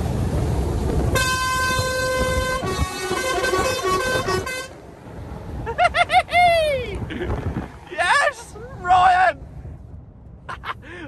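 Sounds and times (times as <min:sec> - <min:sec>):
engine and road rumble: 0:00.0 - 0:11.0
lorry air horn blasts: 0:01.1 - 0:04.8.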